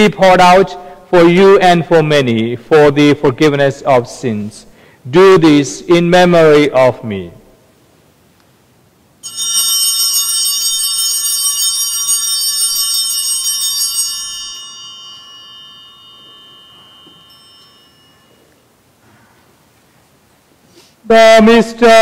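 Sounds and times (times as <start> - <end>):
small bells ringing: 9.2 - 19.1.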